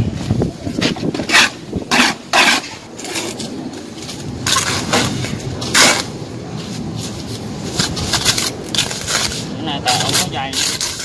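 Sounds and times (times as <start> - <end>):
trowel scraping mortar: 0.8 - 3.4, 4.5 - 6.1, 7.8 - 11.0.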